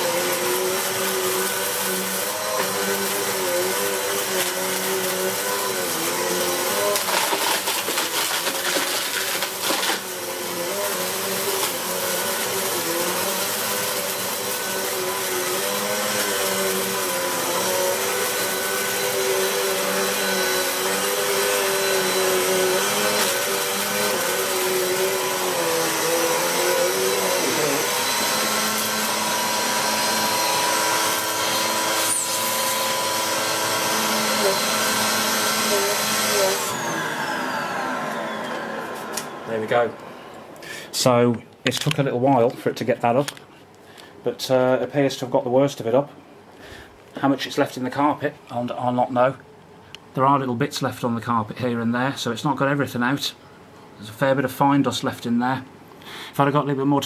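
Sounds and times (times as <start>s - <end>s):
vacuum cleaner running on carpet: 0.0s - 40.4s
vacuum picking up grit: 0.0s - 41.1s.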